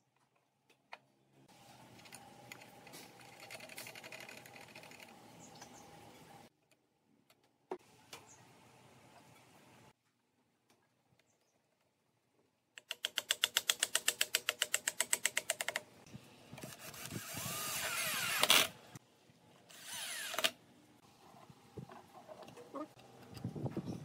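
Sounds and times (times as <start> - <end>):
rapid even clicking: 12.8 - 15.9
cordless drill driving screw into wood: 16.6 - 18.8, 19.7 - 20.6.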